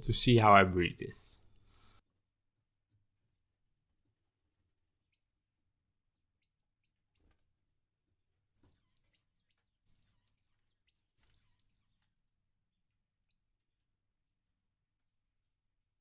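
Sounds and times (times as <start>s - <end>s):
finches chirping: 6.2s - 13.8s.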